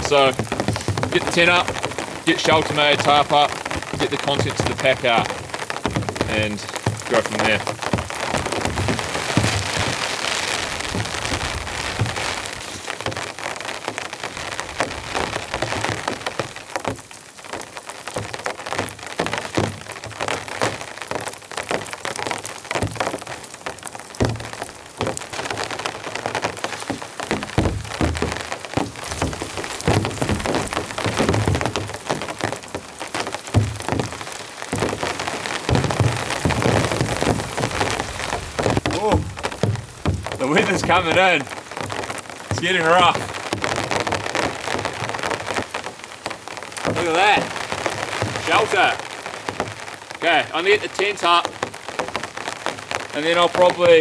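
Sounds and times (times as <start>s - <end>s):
heavy rain falling: 0.0s - 54.0s
dull low thumps: 3.8s - 13.4s, 26.5s - 43.7s.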